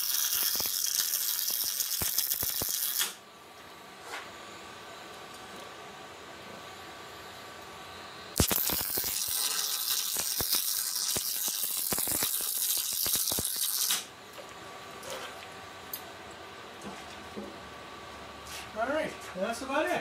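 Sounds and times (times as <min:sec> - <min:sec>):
welding arc crackling: 0:00.0 - 0:03.2, 0:08.4 - 0:14.1.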